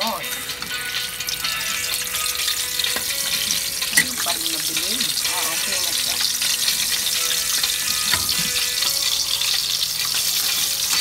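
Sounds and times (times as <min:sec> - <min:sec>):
fish frying in hot oil: 0:00.0 - 0:11.0
metal spatula scraping a pan: 0:05.5 - 0:08.9.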